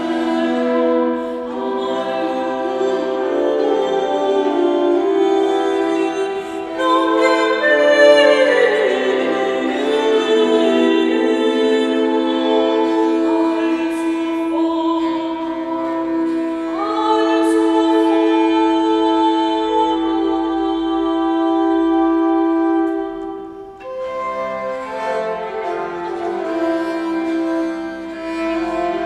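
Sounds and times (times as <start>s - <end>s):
bowed viola: 0.0s - 29.0s
woman singing: 0.0s - 29.0s.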